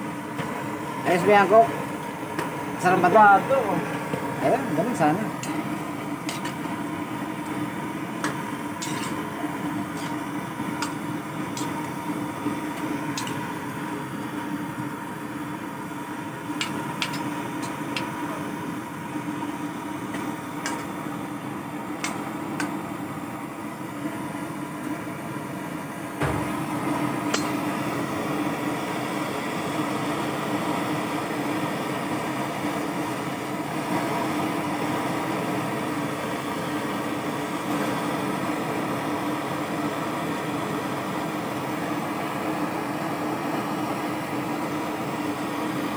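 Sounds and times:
steady mechanical hum: 0:00.0 - 0:45.9
metal spatula scraping a wok: 0:08.8 - 0:09.2.

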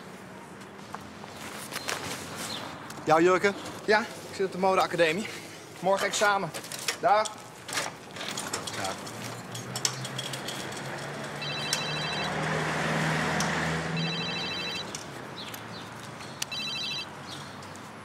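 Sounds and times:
van passing by: 0:08.8 - 0:17.6
mobile phone ringing: 0:11.4 - 0:12.5, 0:14.0 - 0:15.0, 0:16.5 - 0:17.2.

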